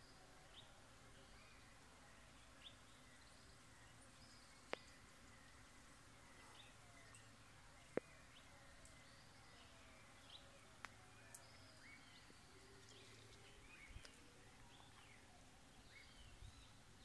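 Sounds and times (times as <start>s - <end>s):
faint birdsong: 0.0s - 17.0s.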